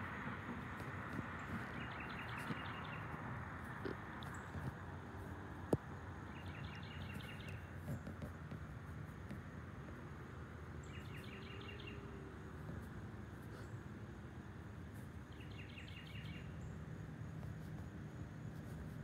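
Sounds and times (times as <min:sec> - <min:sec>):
distant traffic rumble: 0:00.0 - 0:19.0
bird chirping: 0:00.1 - 0:04.7, 0:06.2 - 0:08.2, 0:10.8 - 0:12.2, 0:15.2 - 0:16.8.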